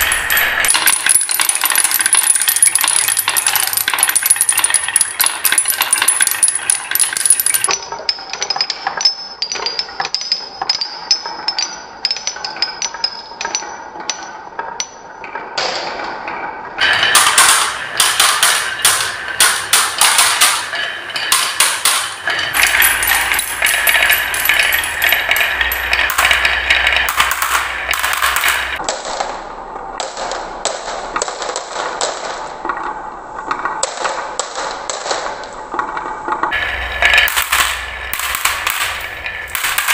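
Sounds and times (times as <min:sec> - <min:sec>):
marbles rattling on wooden run: 0:00.0 - 0:13.8, 0:16.8 - 0:28.8, 0:36.5 - 0:39.9.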